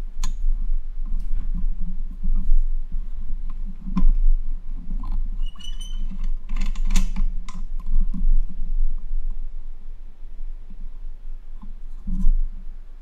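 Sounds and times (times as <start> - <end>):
high squeak: 5.4 - 6.1.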